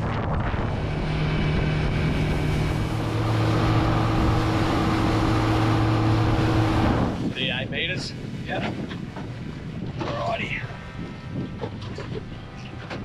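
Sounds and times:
water rushing past hull: 0.0s - 10.1s
motorboat engine running: 0.0s - 13.0s
wind on microphone: 0.0s - 13.0s.

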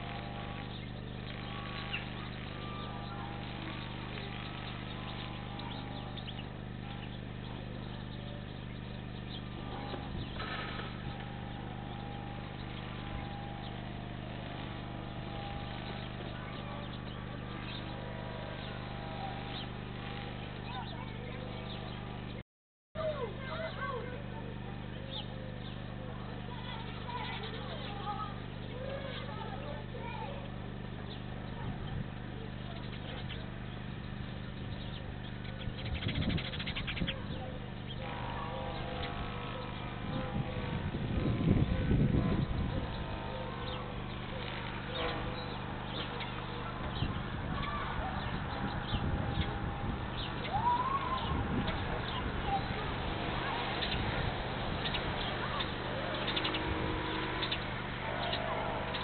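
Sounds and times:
birds calling: 0.0s - 22.4s, 23.0s - 59.0s
steady low hum: 0.0s - 22.4s, 23.0s - 59.0s
rattling bird trill: 23.1s - 59.0s.

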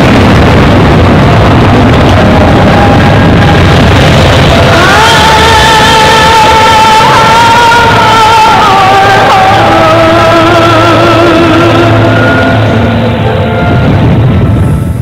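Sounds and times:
slow music over sound system: 0.0s - 15.0s.

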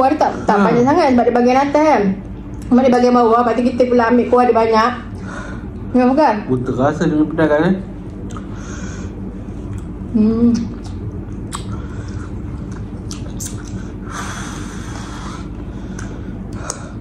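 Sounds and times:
wet chewing and lip smacks: 10.6s - 13.8s.

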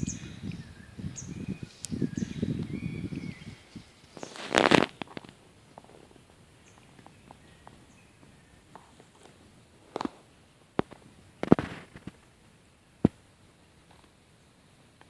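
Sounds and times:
rustling crunch of dry leaves: 1.7s - 12.5s.

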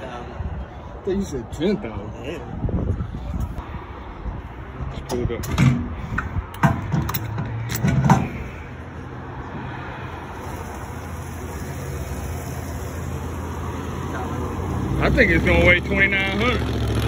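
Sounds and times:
fuel cap clicks and knocks: 5.1s - 8.3s
fuel running from nozzle: 10.0s - 15.6s.

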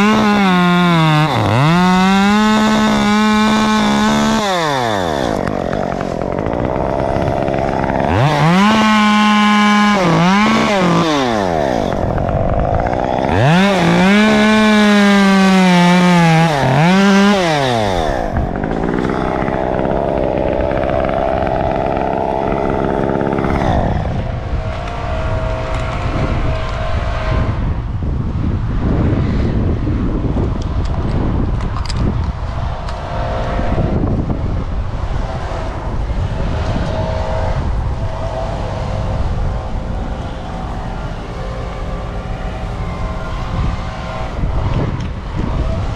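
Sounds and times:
chainsaw revving and idling: 0.0s - 27.6s.

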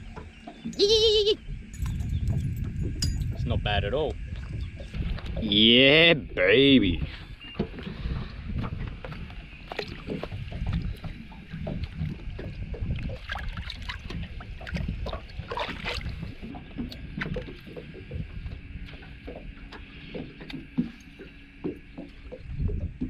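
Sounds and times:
wind rumbling on microphone: 0.0s - 23.0s
knocks against boat: 16.5s - 23.0s.

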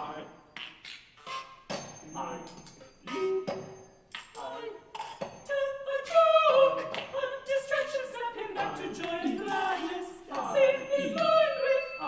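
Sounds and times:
women singing in close harmony: 4.4s - 12.0s.

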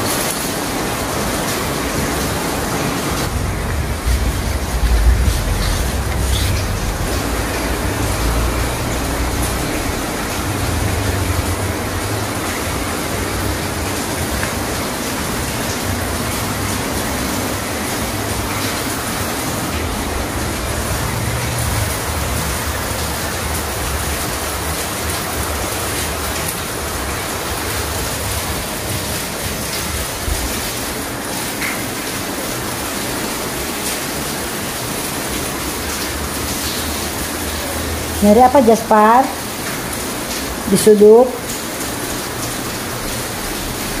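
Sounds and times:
heavy rain falling: 0.0s - 44.0s
low rumble: 3.3s - 10.3s.

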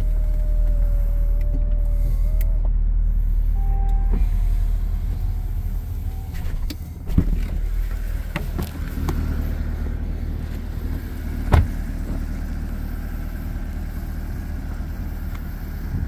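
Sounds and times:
steady low rumble: 0.0s - 16.0s
car door shutting thud: 6.3s - 9.3s, 11.3s - 12.3s
car door clicks: 11.4s - 12.2s.

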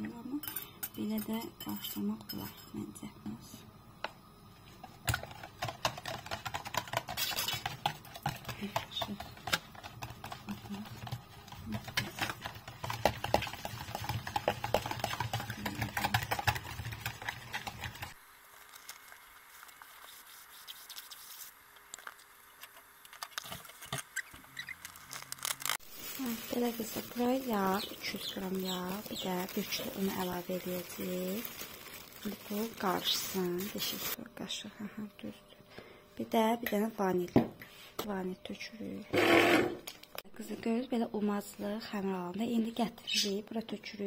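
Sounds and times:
whisk scraping plastic bowl: 5.1s - 18.2s.

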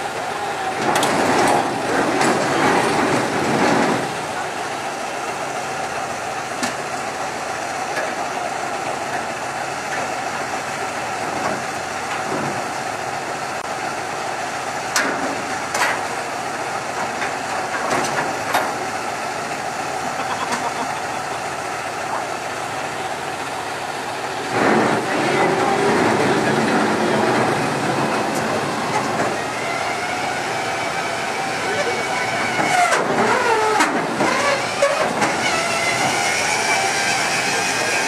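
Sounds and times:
diesel engine idling: 0.0s - 38.0s.

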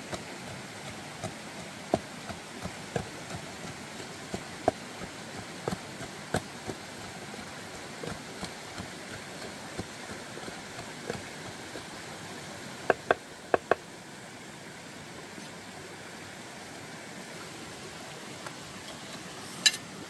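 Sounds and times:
pestle pounding in wooden mortar: 0.0s - 11.9s, 12.9s - 13.8s
stream rushing: 0.0s - 20.0s.

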